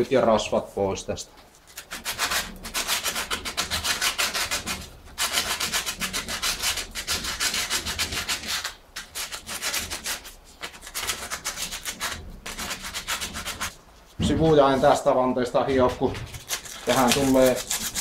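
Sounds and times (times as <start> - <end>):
abrasive strip scraping metal rim: 1.6 - 13.8, 15.9 - 18.0.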